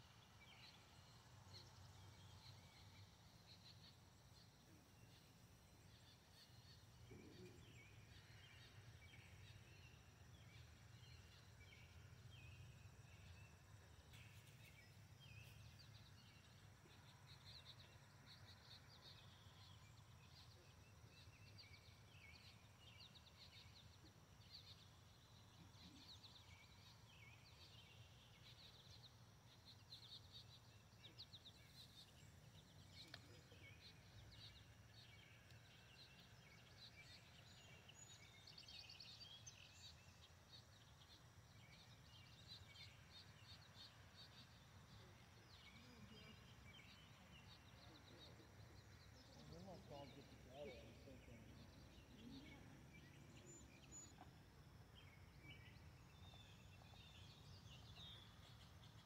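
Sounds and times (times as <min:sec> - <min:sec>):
small birds chirping: 0:00.0 - 0:59.0
faint click: 0:33.0 - 0:33.3.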